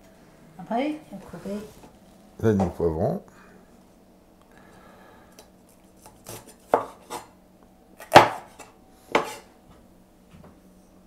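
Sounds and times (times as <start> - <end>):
cleaver chopping on wooden board: 6.2 - 7.2, 8.0 - 9.4.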